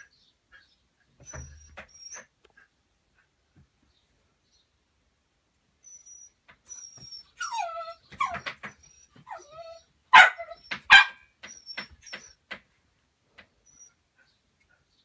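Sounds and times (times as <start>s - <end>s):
dog whining and yelping: 1.2s - 2.7s, 5.8s - 12.5s, 13.6s - 14.3s
dog barking: 10.1s - 11.3s.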